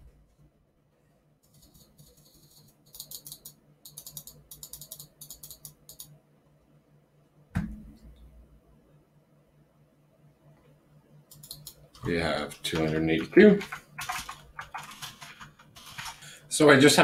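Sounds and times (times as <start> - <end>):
faint steady hum: 0.0 - 17.0
mouse scroll wheel clicking: 1.5 - 6.1, 11.3 - 11.8, 12.7 - 16.3
dull thump: 7.5 - 8.0.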